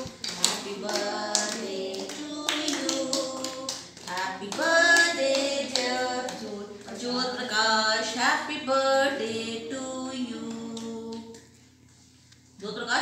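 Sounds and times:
hands clapping: 0.0 - 6.5
women and children singing: 0.0 - 11.5.

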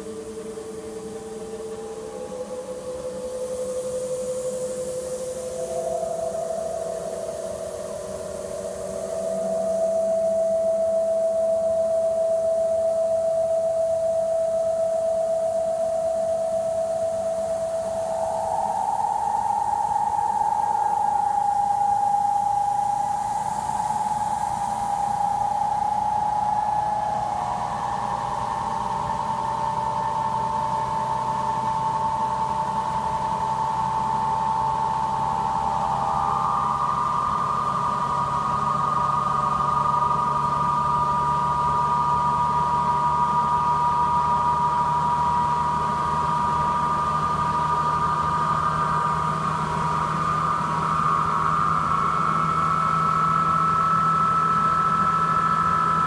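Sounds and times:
extractor machine whine: 0.0 - 56.0.

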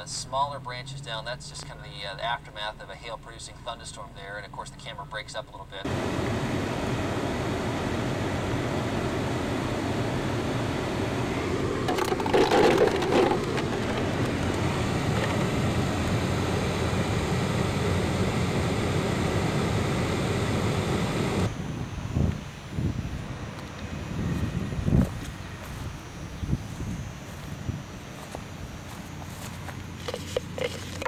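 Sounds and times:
car cabin rumble: 5.9 - 21.5
short clatter: 11.9 - 15.5.

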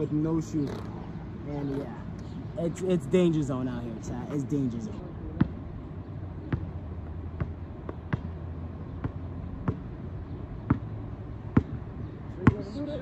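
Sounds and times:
basketball bouncing on asphalt: 5.3 - 5.6, 6.3 - 13.0.

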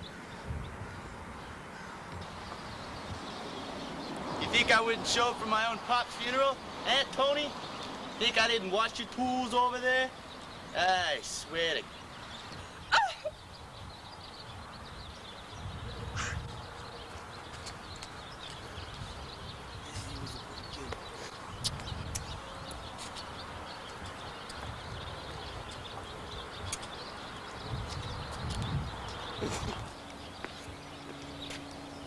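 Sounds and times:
wind rumbling on microphone: 0.0 - 4.6, 12.0 - 32.0
falling vocal cry: 12.9 - 13.3.

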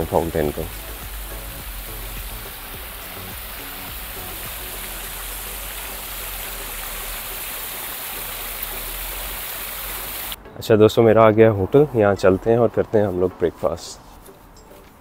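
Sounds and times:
fountain water splashing: 0.0 - 10.4.

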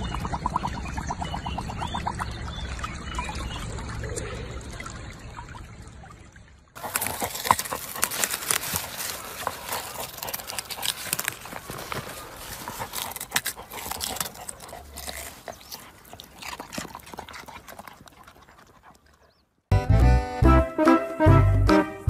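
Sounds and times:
muddy water sloshing: 0.0 - 19.5
dog digging in loose soil: 6.8 - 19.4.

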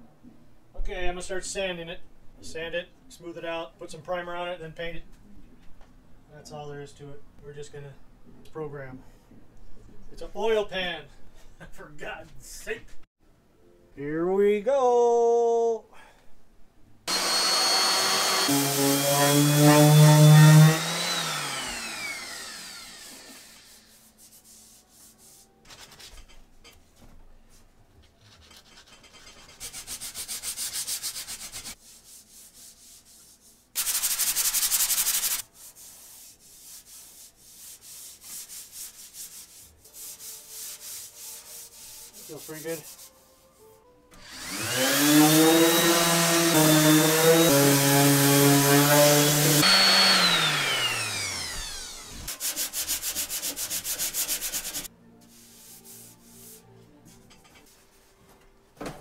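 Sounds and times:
electric sander whine: 17.1 - 23.8, 44.2 - 52.3
hand sanding strokes: 17.1 - 26.0, 28.2 - 43.8, 44.4 - 56.7.

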